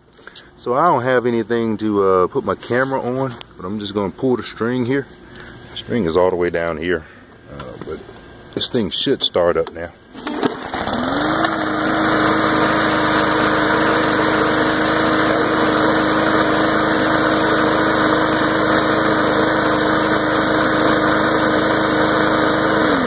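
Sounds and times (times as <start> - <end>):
lawn mower engine running: 10.1 - 23.0
starter cord pull: 10.2 - 11.6.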